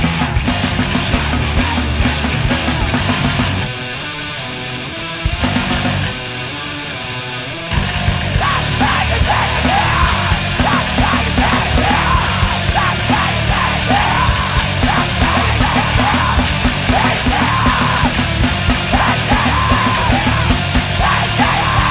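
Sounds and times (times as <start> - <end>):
heavy rock music: 0.0 - 21.9
screamed vocals: 8.2 - 21.9.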